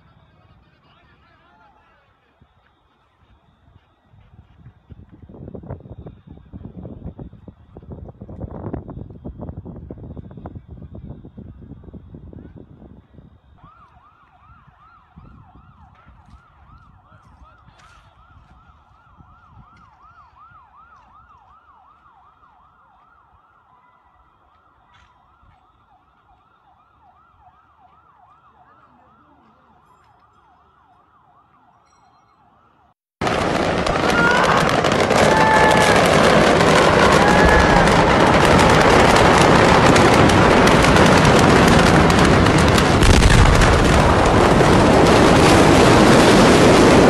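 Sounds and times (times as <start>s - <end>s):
faint siren yelping: 13.6s - 31.8s, 32.4s - 43.0s
loud dense noise: 33.2s - 47.0s.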